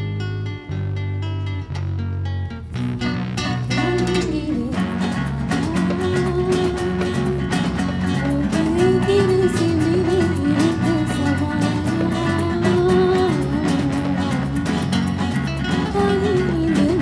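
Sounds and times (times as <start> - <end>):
acoustic guitars strumming: 0.0 - 17.0
woman singing into a microphone: 3.7 - 17.0.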